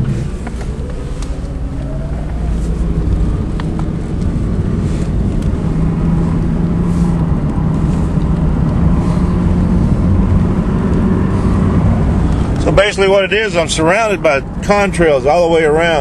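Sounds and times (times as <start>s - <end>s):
car engine hum: 0.0s - 16.0s
road noise inside car: 0.0s - 16.0s.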